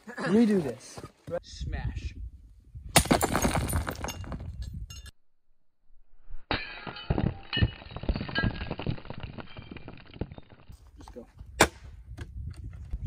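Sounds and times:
sledgehammer smashing rock: 3.0 - 4.1
rock fragments clattering: 3.0 - 4.6, 6.5 - 10.9.

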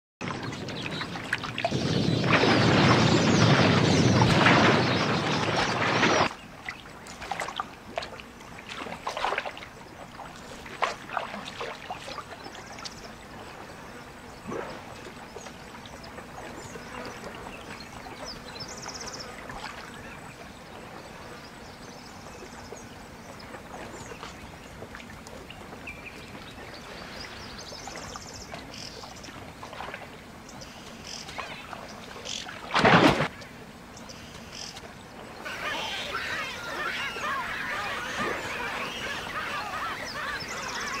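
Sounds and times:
loud water splash: 1.2 - 6.3, 32.6 - 33.3
faint steady hiss: 5.3 - 41.0
high bird chirps: 35.5 - 41.0.

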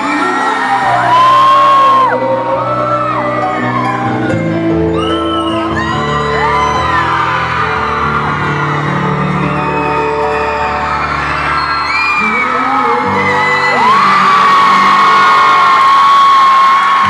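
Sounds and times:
person singing: 0.0 - 7.2, 11.9 - 17.0
audience whooping and shouting: 0.0 - 17.0.

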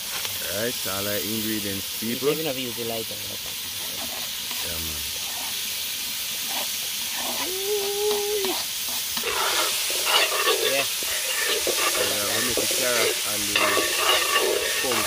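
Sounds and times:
vegetables sizzling in butter: 0.0 - 15.0
metal spoon scraping pot: 9.2 - 15.0.

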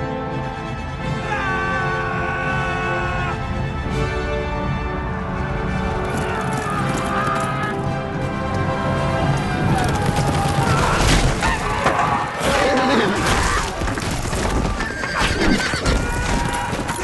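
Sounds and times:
film soundtrack music: 0.0 - 17.0
galloping hooves: 5.8 - 17.0
horses neighing: 9.3 - 17.0.

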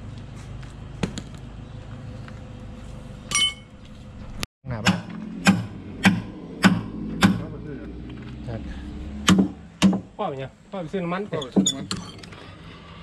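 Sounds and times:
metallic clink: 3.3 - 3.7
hammer striking metal: 4.8 - 7.5.

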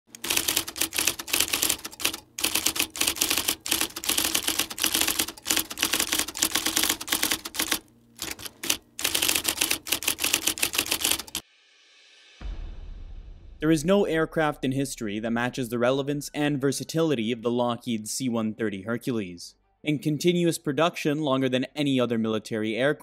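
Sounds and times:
typewriter keys clacking: 0.1 - 11.4.

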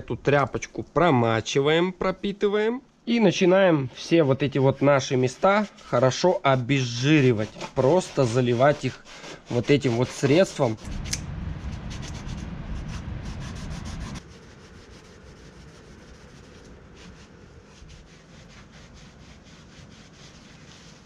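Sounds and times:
rag rubbing on metal: 4.0 - 10.9.

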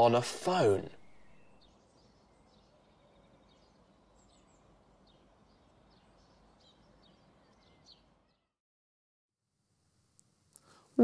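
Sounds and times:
small birds chirping: 0.5 - 8.6.

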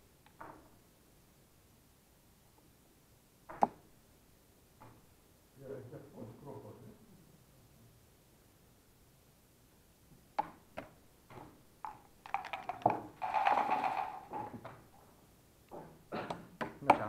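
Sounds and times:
checkers and dice clicking: 11.9 - 14.6.

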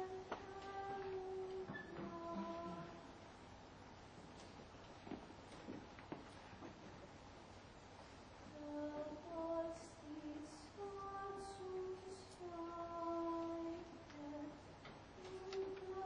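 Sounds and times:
woman singing slow melody: 0.0 - 3.2, 8.5 - 16.0.

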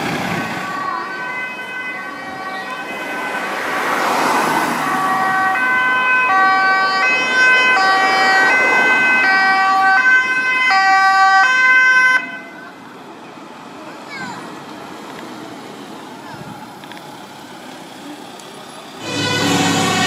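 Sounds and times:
ambulance two-tone siren: 0.0 - 12.9, 19.0 - 20.0.

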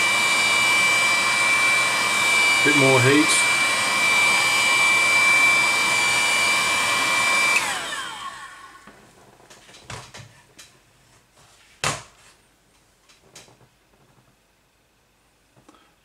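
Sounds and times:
heat gun blowing with high whine: 0.0 - 9.0.

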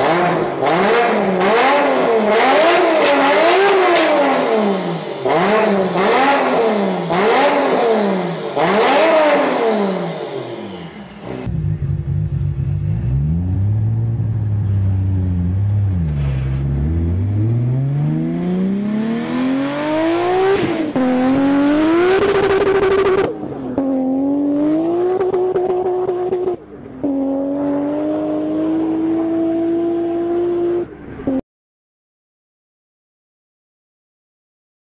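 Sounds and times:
car engine accelerating hard: 0.0 - 31.4.

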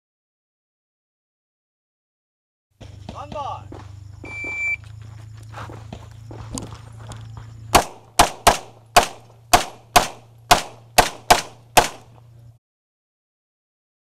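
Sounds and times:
pistol shots: 7.7 - 12.2.

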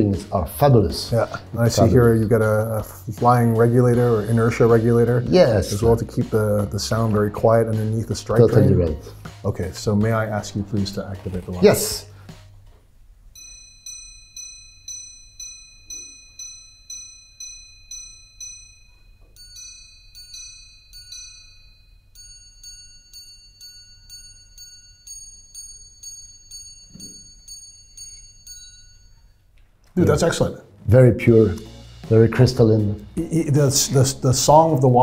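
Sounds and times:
watch chiming on gongs: 13.4 - 29.5.

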